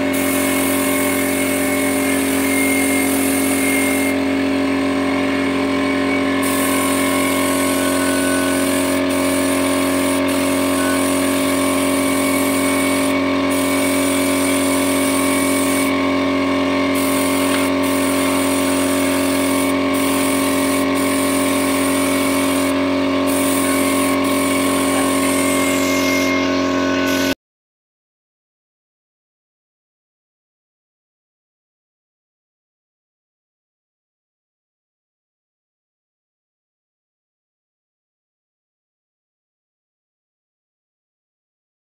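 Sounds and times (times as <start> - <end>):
spray gun hissing: 0.0 - 4.2, 6.4 - 16.3, 16.9 - 26.3
air compressor humming: 0.0 - 27.4.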